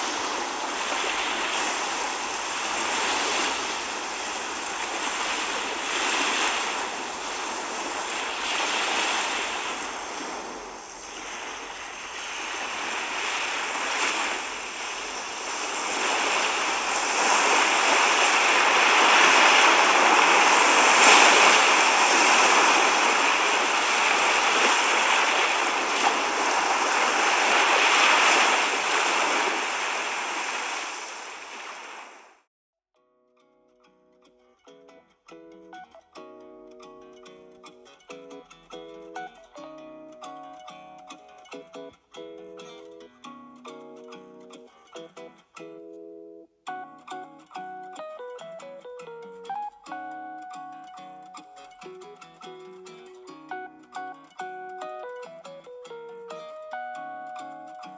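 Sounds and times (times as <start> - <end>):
surf breaking on sandy beach: 0.0 - 32.5.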